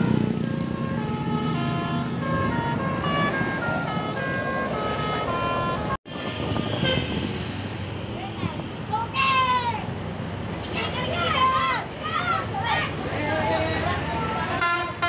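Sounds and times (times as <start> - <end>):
musical bus horn playing tune: 0.0 - 7.2, 14.5 - 15.0
bus and motorbike engines rumbling: 0.0 - 15.0.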